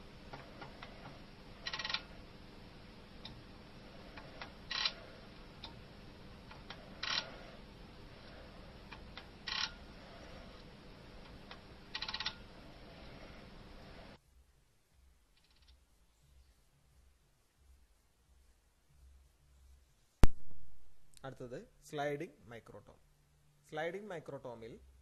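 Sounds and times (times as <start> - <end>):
microtome ratcheting clatter: 0.3 - 2.2, 3.2 - 12.8, 15.3 - 15.8.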